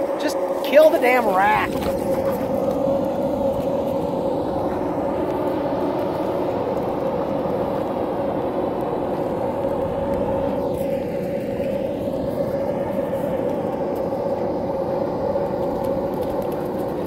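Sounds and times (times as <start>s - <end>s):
machine drone humming: 0.0s - 17.0s.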